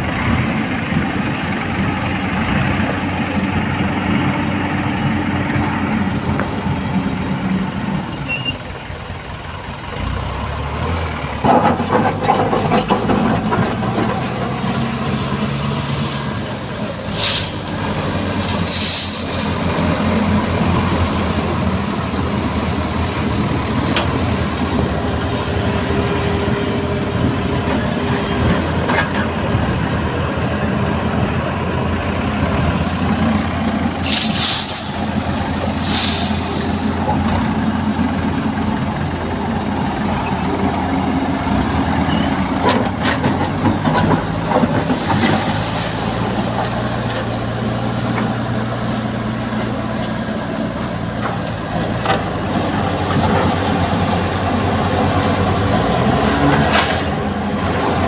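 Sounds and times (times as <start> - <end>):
heavy diesel machinery running: 0.0 - 58.0
short hisses: 17.0 - 19.9, 34.0 - 37.0.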